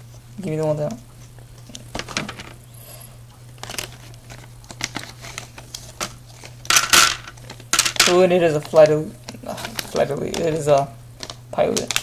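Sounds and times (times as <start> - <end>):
plastic bag crinkling: 3.4 - 12.0.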